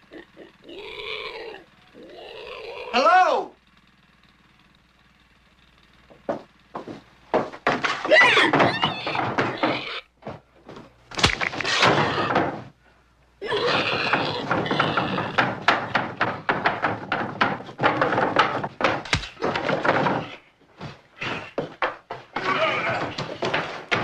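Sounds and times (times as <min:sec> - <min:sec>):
thuds knocks and scraping: 0:06.1 - 0:12.8, 0:13.6 - 0:24.0.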